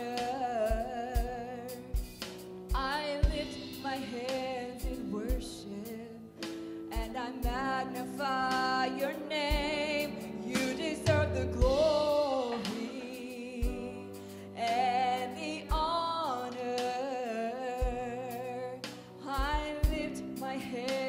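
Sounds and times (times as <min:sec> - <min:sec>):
woman singing with vibrato: 0:00.0 - 0:01.9, 0:02.8 - 0:21.0
band with piano bass and drums: 0:00.0 - 0:21.0
kick drum beats: 0:02.0 - 0:03.7, 0:06.9 - 0:07.7, 0:11.2 - 0:12.2, 0:13.6 - 0:14.0, 0:15.7 - 0:16.0, 0:17.8 - 0:18.2, 0:19.4 - 0:20.2.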